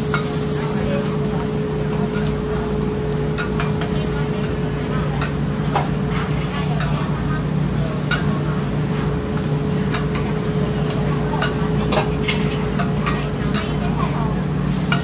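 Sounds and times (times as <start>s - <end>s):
food frying on griddle: 0.0s - 15.0s
metal spatula clicks and scrapes: 5.2s - 5.4s, 9.4s - 13.9s.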